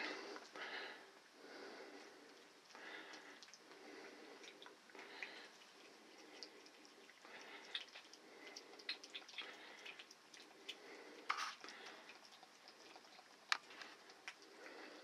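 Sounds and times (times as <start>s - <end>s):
cat lapping wet food: 1.8s - 15.0s.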